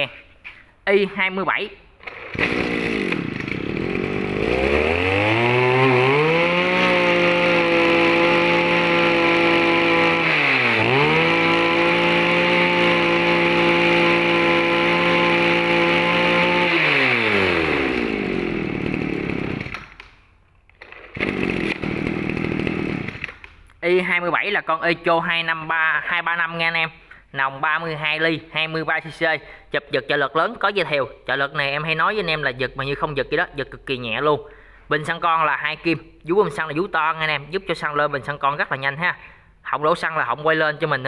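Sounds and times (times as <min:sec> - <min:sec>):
brush cutter engine running: 0:02.0 - 0:20.1, 0:20.8 - 0:23.6.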